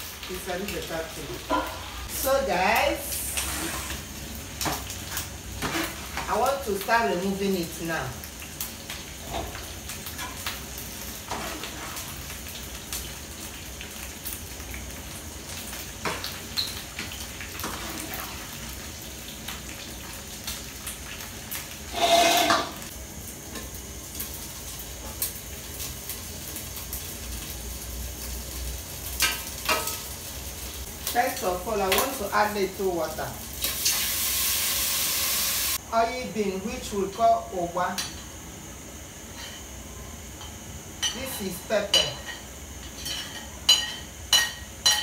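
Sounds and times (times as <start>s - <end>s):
food sizzling in hot oil: 0.0s - 45.0s
metal spoon clinking on pan: 43.0s - 45.0s.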